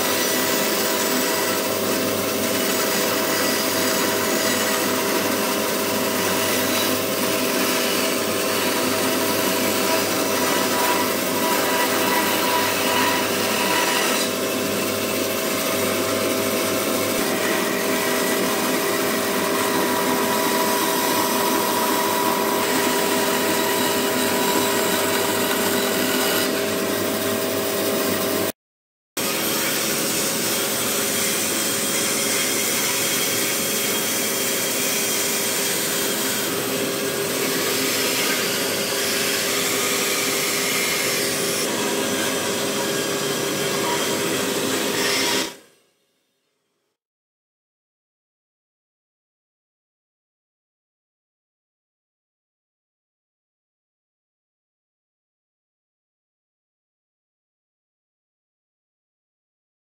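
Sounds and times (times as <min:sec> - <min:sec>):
band saw cutting wood: 0:00.0 - 0:28.6, 0:29.2 - 0:45.6
table saw humming: 0:00.0 - 0:28.6, 0:29.2 - 0:45.6.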